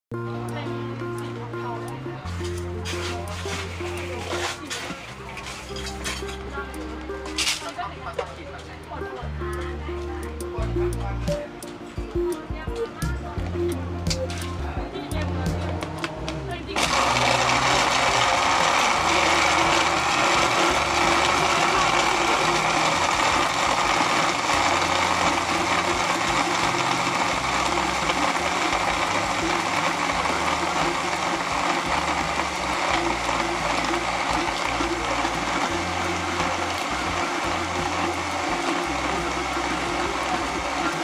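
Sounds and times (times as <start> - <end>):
blender crushing ice: 2.5 - 6.4, 16.8 - 41.0.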